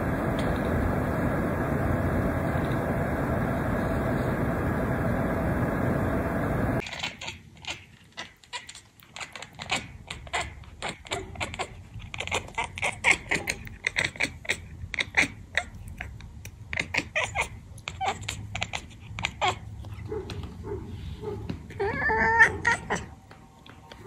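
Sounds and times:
cat chattering with clicking chirps: 0:06.8 - 0:20.0.

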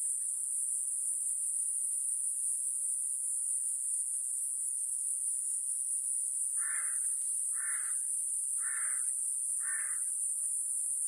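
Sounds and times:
cicadas buzzing: 0:00.0 - 0:11.0
crow cawing: 0:06.6 - 0:08.0, 0:08.6 - 0:10.1.

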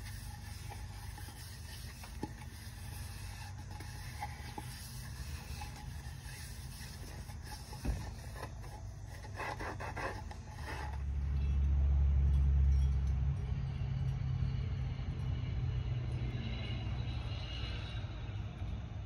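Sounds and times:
scraping and clicking: 0:00.0 - 0:11.1
low rumbling hum: 0:00.0 - 0:19.0.

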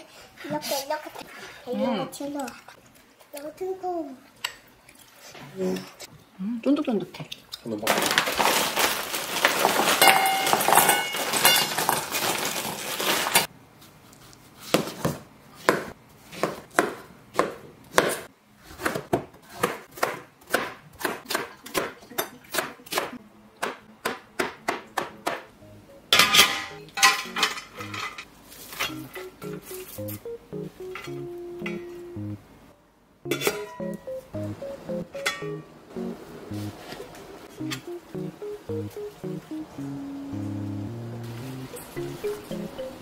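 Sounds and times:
knife chopping on cutting board: 0:14.7 - 0:25.5.

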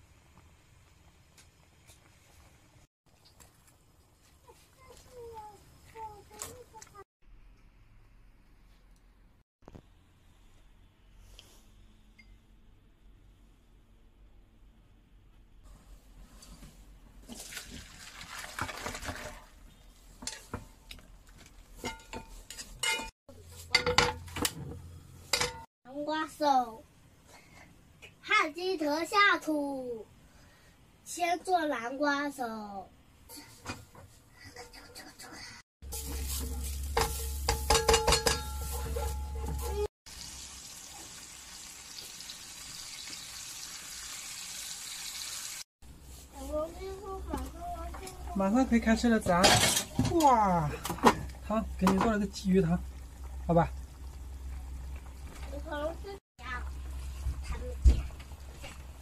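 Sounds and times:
soup pouring and splashing: 0:17.2 - 0:19.6
metal clinks of pots and chopsticks: 0:21.8 - 0:23.1, 0:37.0 - 0:39.9
fish and tofu sizzling: 0:35.8 - 0:45.7, 0:50.4 - 0:59.0
spatula knocking in metal pan: 0:37.0 - 0:39.7.

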